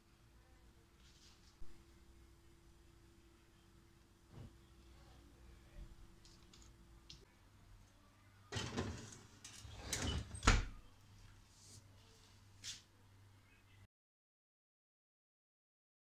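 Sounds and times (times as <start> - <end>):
cake pan scraping on oven rack: 8.5 - 10.4
oven door shutting: 8.5 - 10.8.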